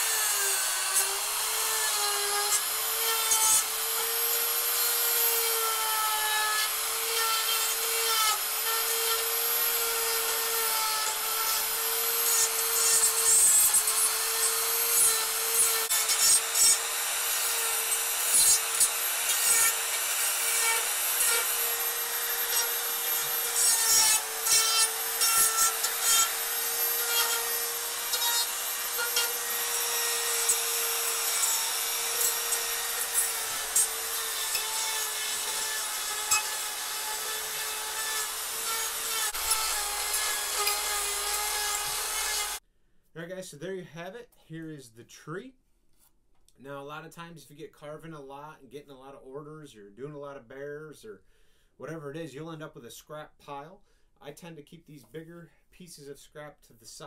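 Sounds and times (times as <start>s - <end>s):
bit rasping against wood: 0.0s - 42.6s
die grinder whining: 0.0s - 42.6s.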